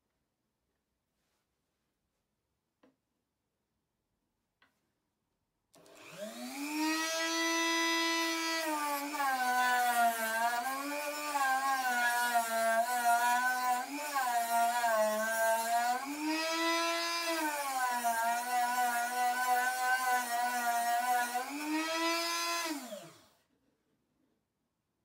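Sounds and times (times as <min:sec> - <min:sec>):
rotary tool cutting wood: 0:05.8 - 0:23.3.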